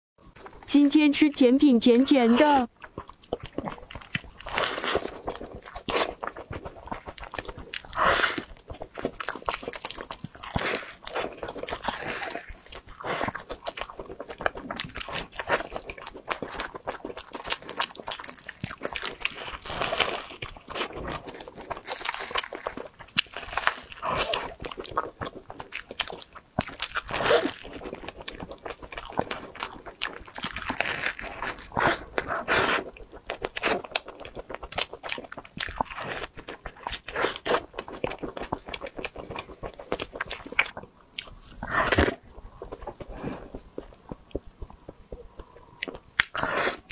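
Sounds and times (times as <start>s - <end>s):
chewing: 2.4s - 46.9s
pastry shell crunching: 8.7s - 32.3s.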